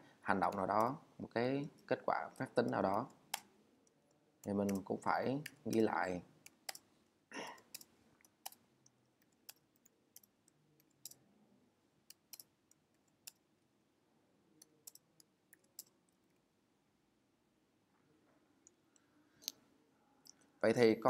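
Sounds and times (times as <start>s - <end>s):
computer keyboard keystrokes: 0.4s - 1.0s, 4.4s - 6.8s, 14.8s - 15.9s.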